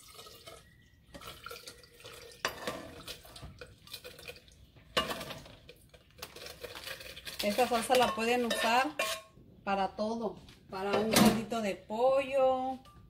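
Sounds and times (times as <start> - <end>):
crackly rustling and dripping: 0.0 - 8.4.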